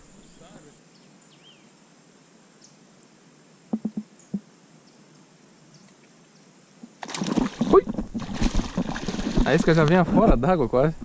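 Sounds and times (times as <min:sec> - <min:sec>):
dull knocks: 0:03.7 - 0:04.4, 0:07.2 - 0:11.0.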